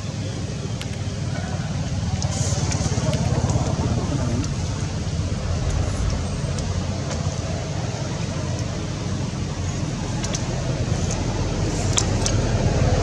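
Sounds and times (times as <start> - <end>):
low rumbling background noise: 0.0 - 13.0
faint clicks: 10.2 - 12.4.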